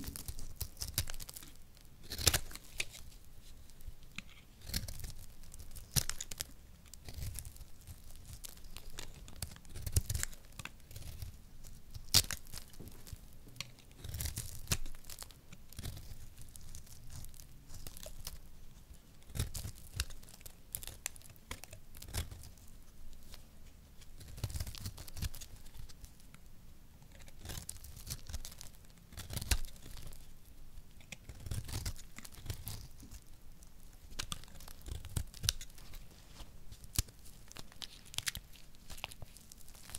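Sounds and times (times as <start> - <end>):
blade scraping dry soap: 0.0 - 3.2, 4.1 - 18.4, 19.2 - 22.6, 31.0 - 33.3, 34.1 - 36.1.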